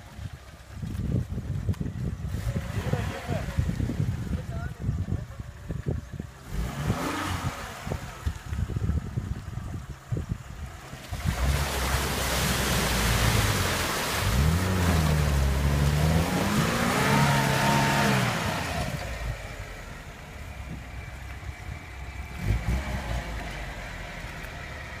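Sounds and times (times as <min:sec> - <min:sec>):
wheels spinning in mud and water: 0:00.0 - 0:25.0
car engine revving: 0:06.4 - 0:08.4, 0:11.0 - 0:25.0.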